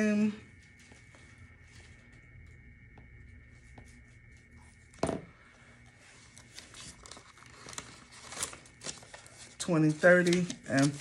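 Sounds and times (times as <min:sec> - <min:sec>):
paper pages turning: 0:06.2 - 0:11.0
paper rustling and clicks: 0:06.4 - 0:11.0.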